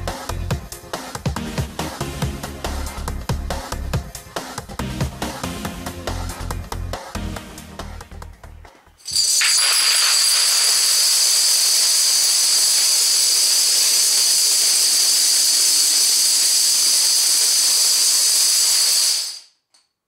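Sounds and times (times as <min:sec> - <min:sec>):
plastic dominoes toppling: 0:09.1 - 0:15.2.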